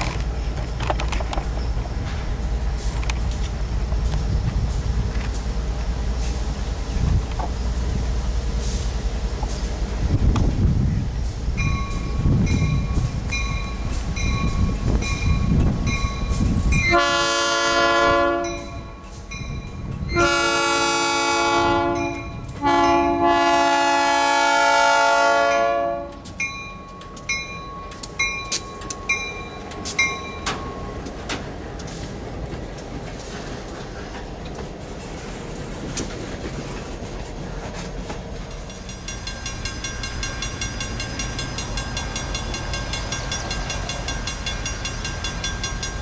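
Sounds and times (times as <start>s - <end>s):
crossing signal bell ringing: 11.6s - 17.4s, 18.3s - 20.3s, 21.8s - 23.4s, 25.4s - 31.2s, 38.5s - 46.0s
locomotive horn blasts: 16.8s - 18.9s, 20.1s - 26.3s
train wheels clacking over rails: 25.4s - 46.0s.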